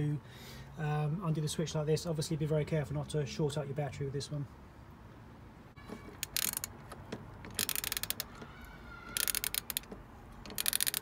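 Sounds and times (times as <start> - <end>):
ratchet wrench clicking: 6.2 - 6.8, 7.4 - 8.3, 9.1 - 11.0.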